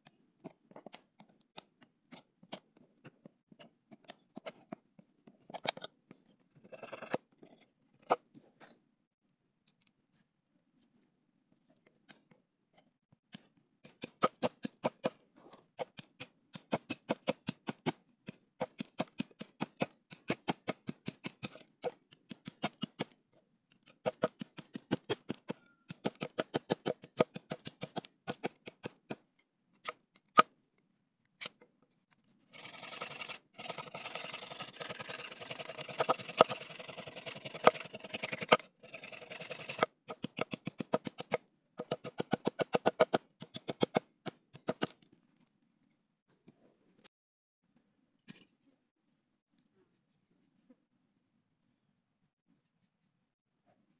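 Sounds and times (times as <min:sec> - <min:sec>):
knife scraping wooden stick: 0:32.4 - 0:44.0.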